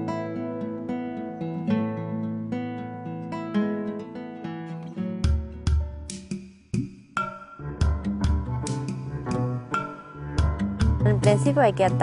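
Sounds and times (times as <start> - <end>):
plucked acoustic guitar: 0.0 - 6.4.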